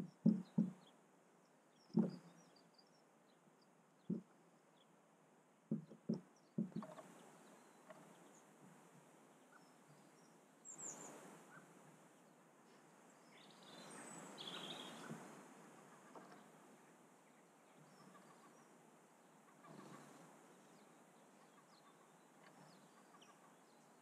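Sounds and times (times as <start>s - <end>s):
sharp taps of bill pecking: 0.0s - 0.9s, 1.9s - 2.3s, 4.0s - 4.3s, 5.7s - 7.1s
small birds chirping faintly: 0.0s - 24.0s.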